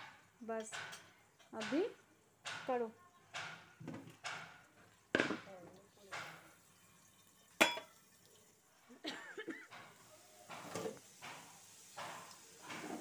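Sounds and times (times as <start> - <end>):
metal kitchenware clank: 7.6 - 8.0.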